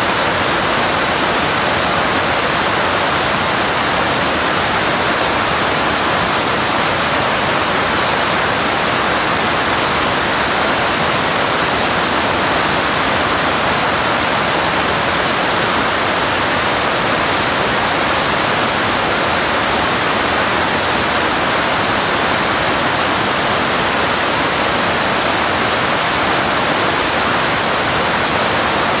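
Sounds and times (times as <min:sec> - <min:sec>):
water rushing over a dam: 0:00.0 - 0:29.0.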